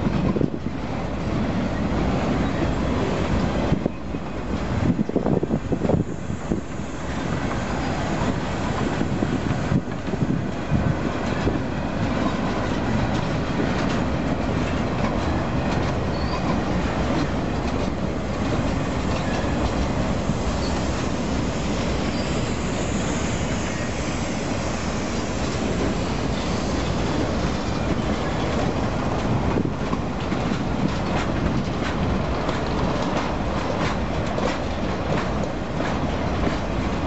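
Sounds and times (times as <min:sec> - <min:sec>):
train wheels rumbling on rails: 0:00.0 - 0:37.0
high wheel squeal: 0:16.1 - 0:16.6, 0:20.5 - 0:21.0, 0:21.6 - 0:27.2.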